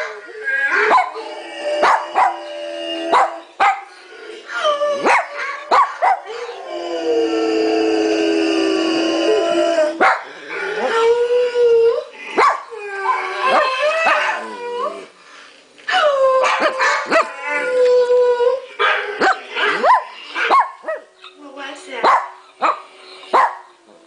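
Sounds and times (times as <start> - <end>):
dog howling through speakers: 0.0 - 3.5, 4.5 - 10.0, 10.8 - 15.1, 15.9 - 20.5
dog howling: 0.0 - 3.6, 4.5 - 15.1, 15.9 - 21.0.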